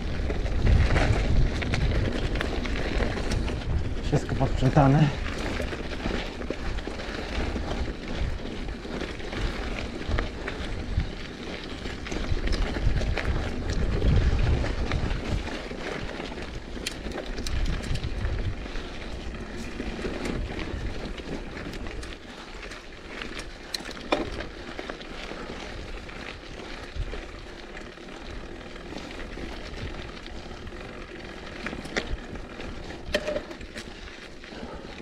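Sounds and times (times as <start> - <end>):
wind buffeting microphone: 0.0 - 22.7
bike clicks and rattles: 0.0 - 35.0.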